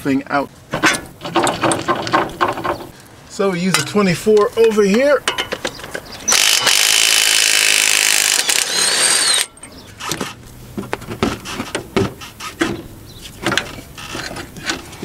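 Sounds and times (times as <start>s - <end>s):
metallic clicks and knocks: 0.7s - 3.0s, 3.7s - 6.1s.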